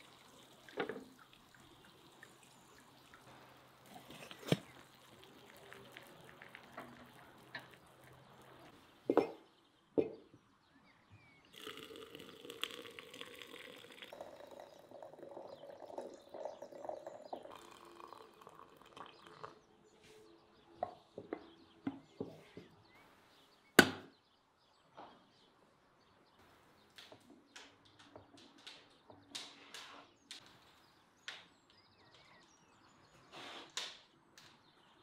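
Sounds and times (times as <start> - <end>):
hot water pouring into teapot: 0.0 - 8.7, 11.5 - 19.6.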